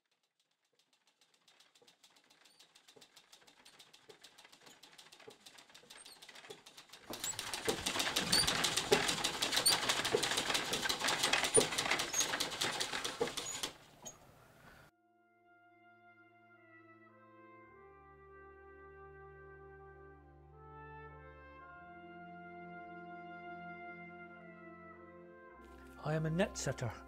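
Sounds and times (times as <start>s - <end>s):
machine clattering with rapid clicks: 0.0s - 14.0s.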